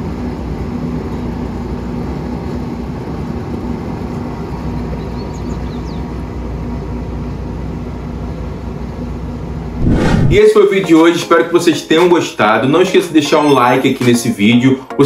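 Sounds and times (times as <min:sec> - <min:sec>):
outdoor rumble and hiss: 0:00.0 - 0:10.6
bird chirps: 0:05.0 - 0:06.1.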